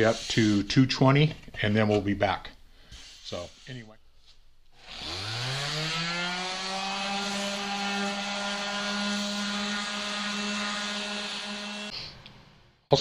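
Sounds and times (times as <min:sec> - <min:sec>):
electric sander whining: 0:04.8 - 0:11.9.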